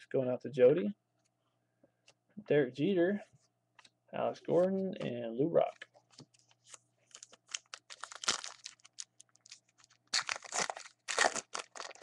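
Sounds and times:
wrapper crinkling and tearing: 7.1s - 12.0s.

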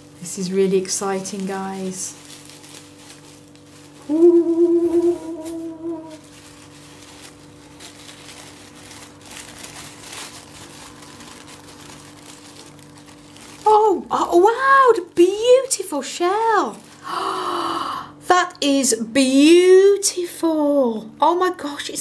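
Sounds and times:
paper and bubble wrap crinkling: 0.0s - 17.1s
woman humming: 4.0s - 6.3s, 17.0s - 18.2s.

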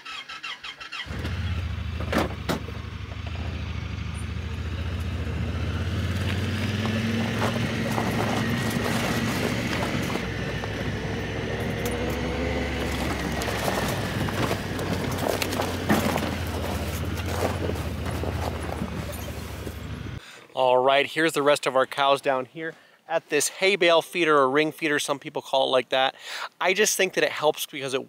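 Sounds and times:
vehicle engine running: 1.1s - 20.2s.

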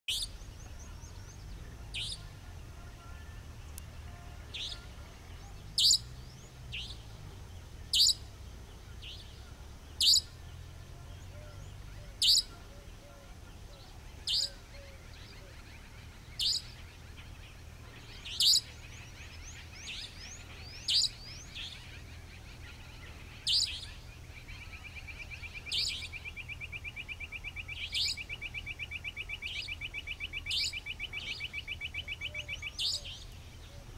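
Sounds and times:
nightjar sharp high call: 4.1s - 6.2s, 7.9s - 8.3s, 10.0s - 10.4s, 11.3s - 16.8s, 17.9s - 33.9s.

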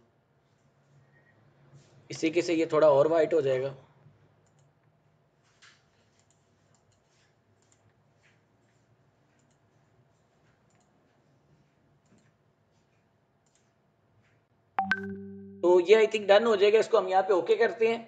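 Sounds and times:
computer mouse clicks: 4.4s - 4.8s, 5.6s - 8.3s, 9.3s - 9.8s, 10.4s - 11.2s, 12.0s - 12.4s, 13.4s - 14.4s.

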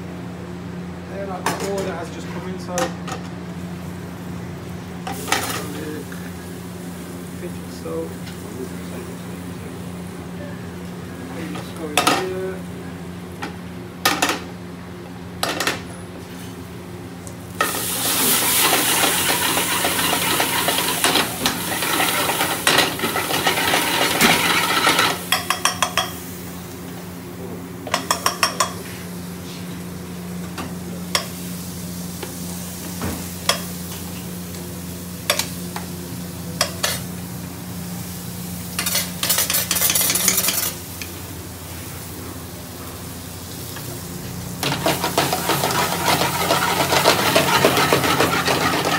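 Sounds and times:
food sizzling in hot oil: 17.5s - 26.5s, 43.1s - 48.9s.

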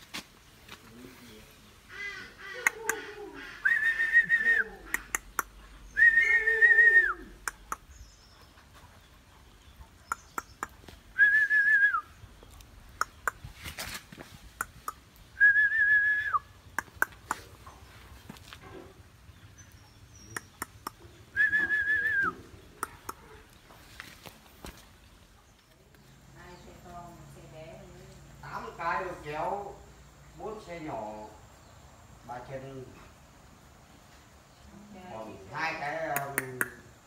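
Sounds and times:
sharp clicks: 4.9s - 5.6s, 7.4s - 7.9s, 16.7s - 17.5s, 20.3s - 21.0s
person whistling notes: 21.4s - 22.4s.

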